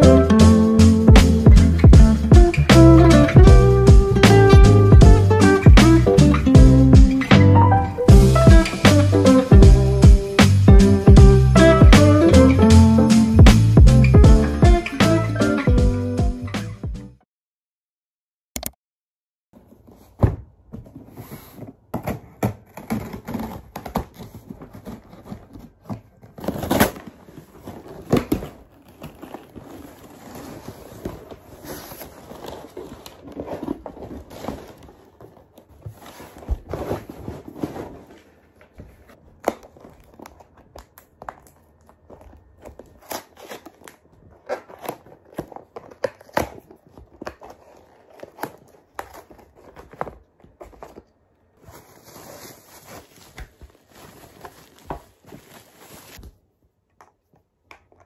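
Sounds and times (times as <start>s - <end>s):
crinkling and rustling: 19.6s - 58.0s.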